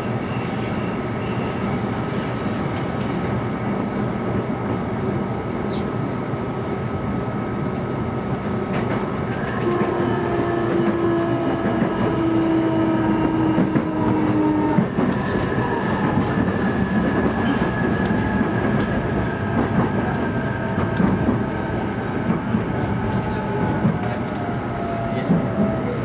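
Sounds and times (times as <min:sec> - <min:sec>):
train wheels rumbling on rail: 0:00.0 - 0:26.0
light rail clacks: 0:07.6 - 0:12.5, 0:13.1 - 0:26.0.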